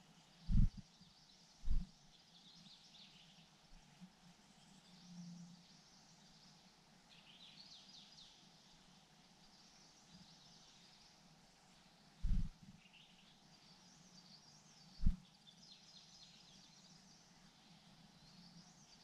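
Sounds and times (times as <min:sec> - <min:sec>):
low thump: 0:01.7 - 0:01.9, 0:12.2 - 0:12.5.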